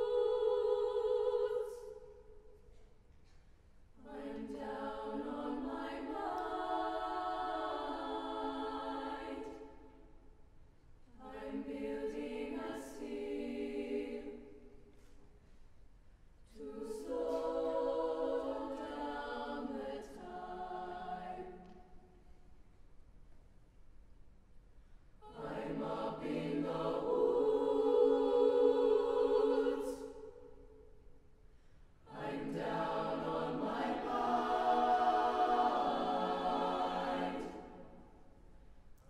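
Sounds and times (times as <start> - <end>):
mixed choir singing a cappella: 0.0 - 2.3, 4.0 - 10.2, 11.1 - 15.0, 16.4 - 22.0, 25.2 - 30.8, 32.0 - 38.7.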